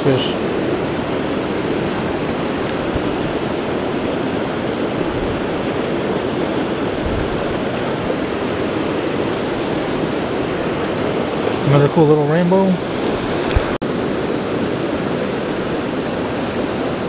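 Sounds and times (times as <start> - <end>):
creek rushing over boulders: 0.0 - 17.0.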